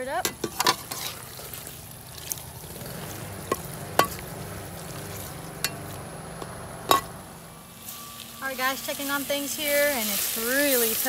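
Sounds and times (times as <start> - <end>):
sizzling pan: 0.0 - 11.0
spatula stirring in wok: 0.2 - 11.0.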